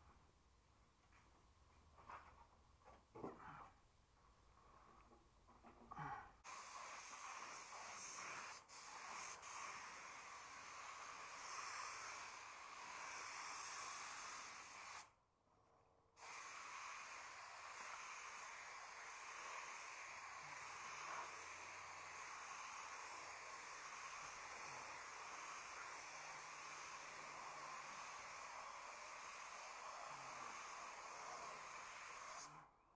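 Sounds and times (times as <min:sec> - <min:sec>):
spray gun hissing: 0:06.5 - 0:15.1, 0:16.2 - 0:32.6.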